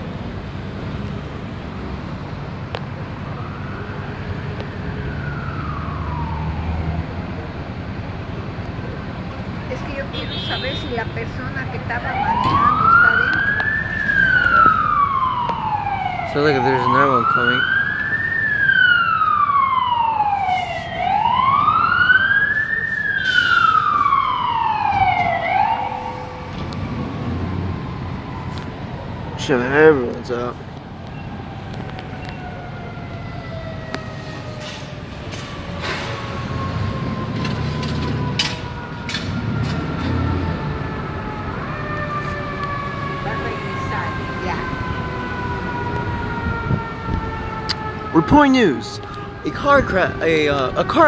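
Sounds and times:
siren wailing: 0:03.1 - 0:07.3, 0:11.4 - 0:51.0
vehicle engine rumble: 0:18.0 - 0:48.2.

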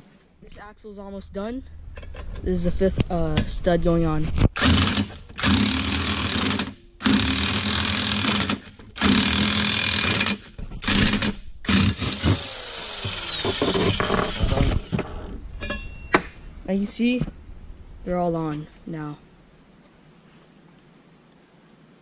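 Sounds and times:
motor winding down whine: 0:11.9 - 0:14.9.

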